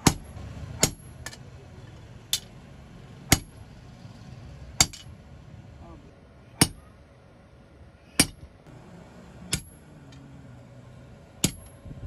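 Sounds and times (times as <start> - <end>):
hammer striking steel on anvil: 0.0 - 1.5, 3.3 - 3.6, 4.8 - 5.1, 6.6 - 6.9, 8.2 - 8.5, 9.5 - 10.2, 11.4 - 11.8.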